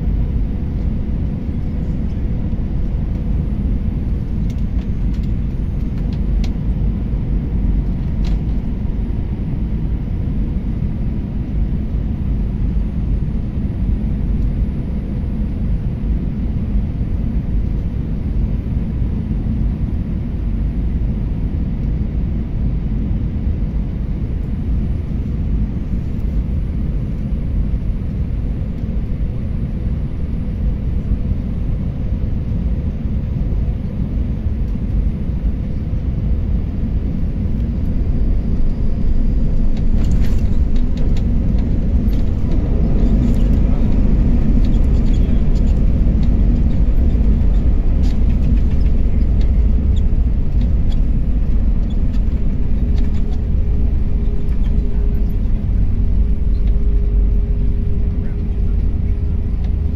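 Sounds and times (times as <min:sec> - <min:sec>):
jet engine and airflow rumble: 0:00.0 - 0:59.9.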